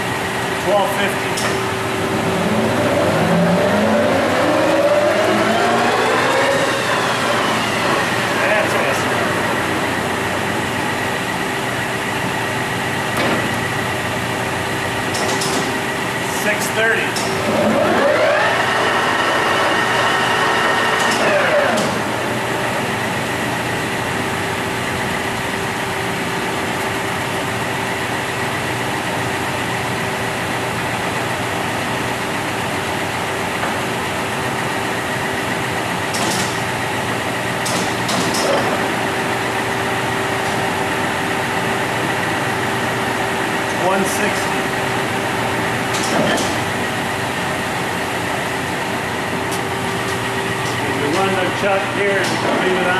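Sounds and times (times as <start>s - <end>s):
machine hum: 0.0s - 52.9s
lathe spindle whine: 1.6s - 13.0s, 17.4s - 26.3s.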